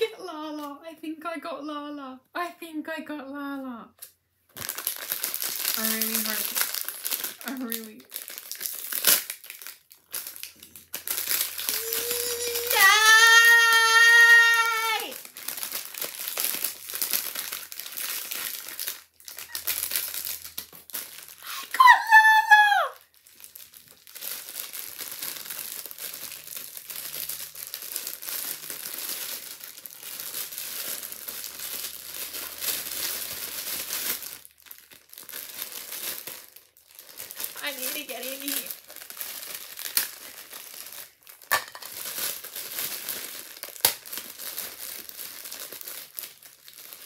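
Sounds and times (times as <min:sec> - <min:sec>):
plastic wrapping crinkling: 0:04.0 - 0:47.0
high-pitched excited squeal: 0:11.6 - 0:15.2, 0:21.4 - 0:23.0.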